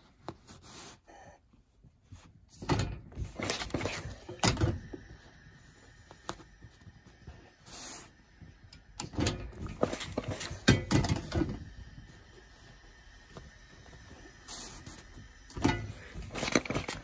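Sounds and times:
iron knocking and thumping: 9.0 - 11.6.

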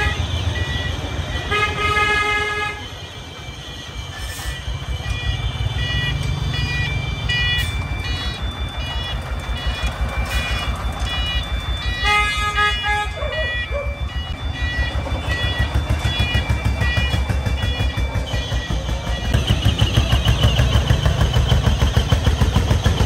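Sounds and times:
horn toot: 0.0 - 3.0, 9.6 - 21.2
diesel truck engine chugging: 0.0 - 23.0
high beeping tune: 0.0 - 23.0.

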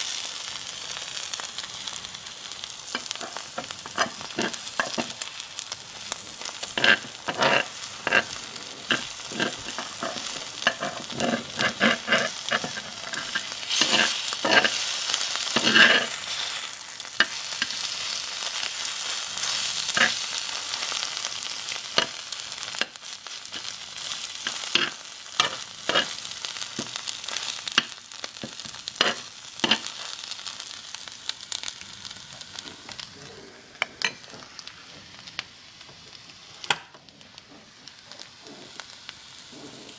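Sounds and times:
egg sizzling in skillet: 0.0 - 39.9
metal utensil scraping pan: 2.9 - 5.7, 6.4 - 21.0, 21.7 - 30.1.

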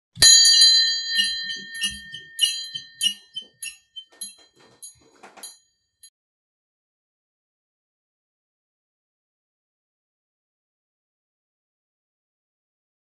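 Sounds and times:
metal bell ringing: 0.2 - 5.7.

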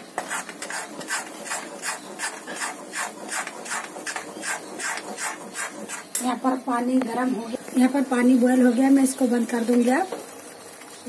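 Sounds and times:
metal spatula scraping a pan: 0.0 - 6.5.

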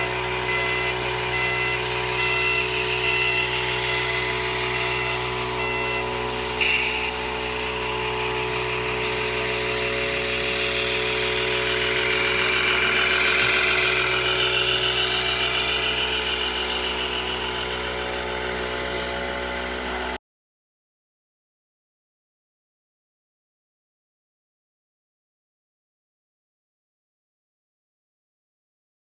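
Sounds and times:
toy truck motor hum and whine: 0.0 - 20.2.

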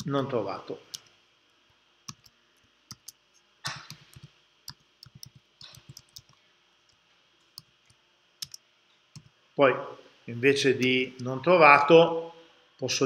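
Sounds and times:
computer keyboard typing clicks: 2.1 - 6.4, 7.5 - 8.6.

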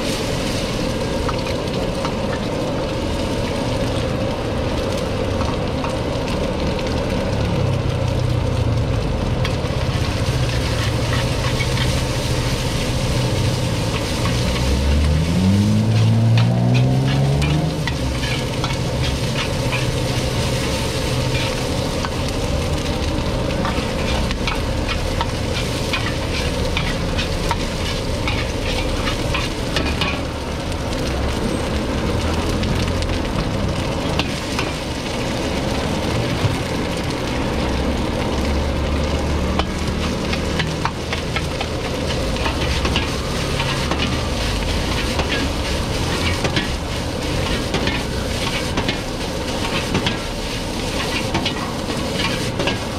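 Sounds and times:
rice sizzling in a wok: 0.0 - 52.9
metal ladle scraping a pan: 10.1 - 22.2, 23.6 - 30.2, 39.6 - 52.9.

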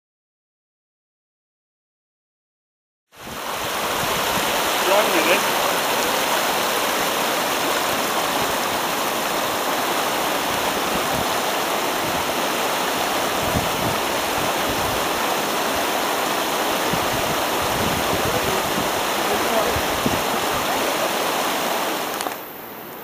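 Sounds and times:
river rushing over stones: 3.2 - 23.0.

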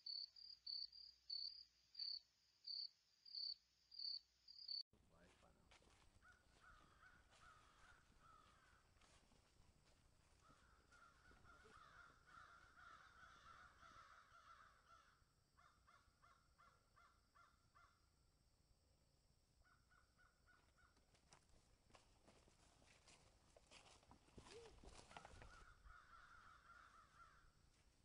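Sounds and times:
forest bird calling: 6.2 - 8.8, 10.4 - 18.0, 24.4 - 27.5.

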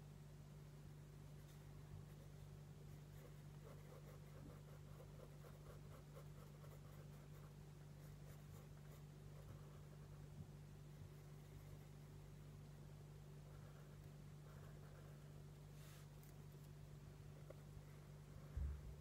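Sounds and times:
steady low hum: 0.0 - 19.0
pencil strokes on paper: 1.3 - 10.2.

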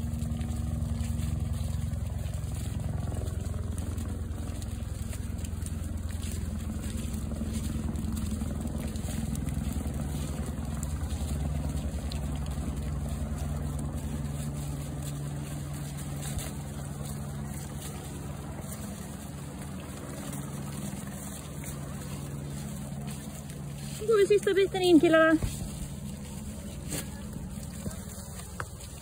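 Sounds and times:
hooves and footsteps on gravel: 0.0 - 29.0
low engine hum: 0.0 - 29.0.

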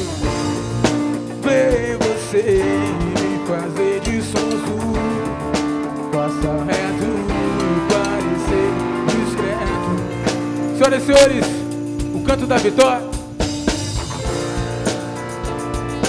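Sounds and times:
drum kit and percussion: 0.0 - 16.0
electric guitar: 0.0 - 16.0
man singing into a microphone: 1.3 - 11.6.

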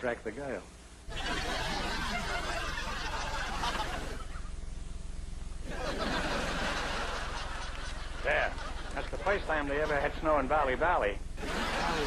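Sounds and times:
low soundtrack hum: 0.6 - 12.0
audience laughter: 1.1 - 4.5, 5.7 - 10.1, 11.4 - 12.0.

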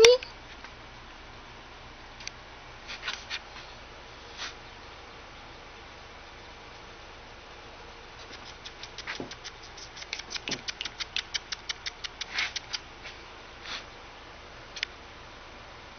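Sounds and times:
rabbit crunching carrot: 8.1 - 13.8.

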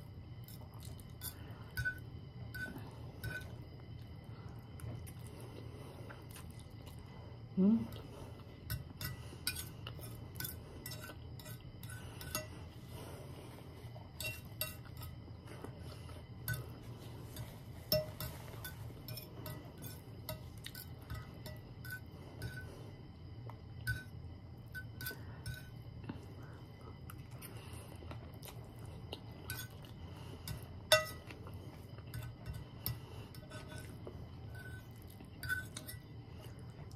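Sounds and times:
fork clinking on ceramic plate: 17.4 - 22.7, 30.5 - 31.3, 35.4 - 36.0.

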